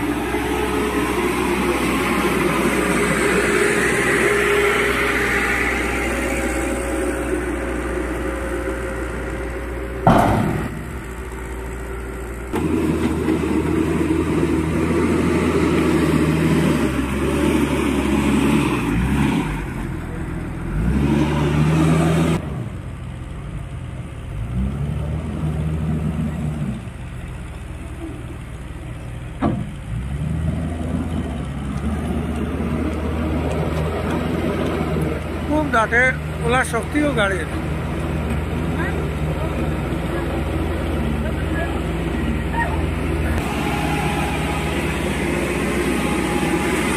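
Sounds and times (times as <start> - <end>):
heavy diesel engines revving: 0.0 - 46.9
truck unloading soil: 0.0 - 46.9
sharp knock: 10.1 - 10.8.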